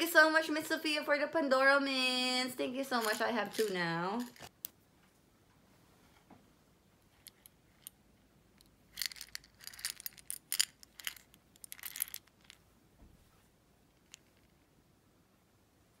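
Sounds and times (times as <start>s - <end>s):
mints rattling in metal tin: 2.8s - 4.5s, 8.9s - 12.6s.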